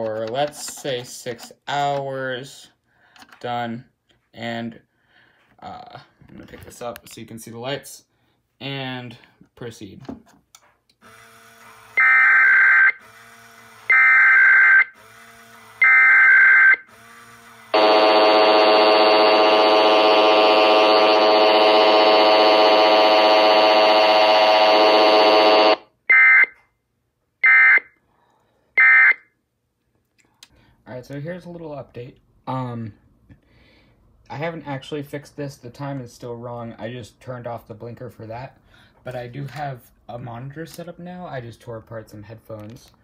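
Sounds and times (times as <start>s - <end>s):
harsh distorted attention tone: 17.8s - 26.6s.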